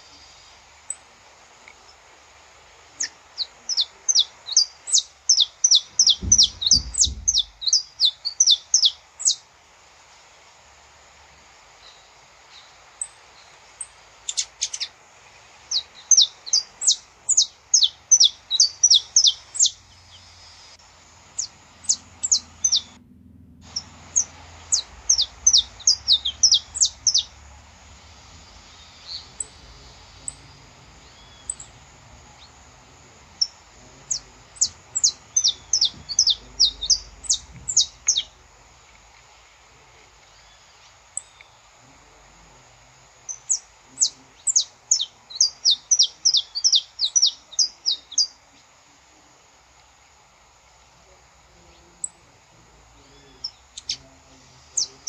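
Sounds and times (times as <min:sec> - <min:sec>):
finch singing sharp chirps: 0:03.0 - 0:09.4, 0:15.7 - 0:20.6, 0:21.4 - 0:23.0, 0:23.7 - 0:27.5, 0:28.5 - 0:31.8, 0:33.4 - 0:38.4, 0:43.3 - 0:48.3.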